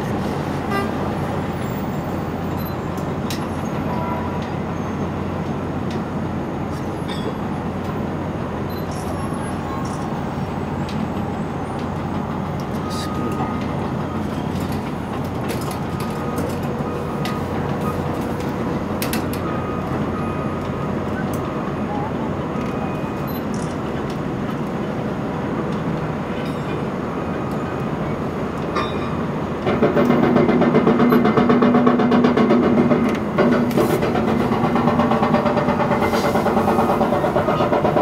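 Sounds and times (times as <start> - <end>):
excavator diesel engine running: 0.0 - 38.0
metal clanks and knocks: 28.8 - 38.0.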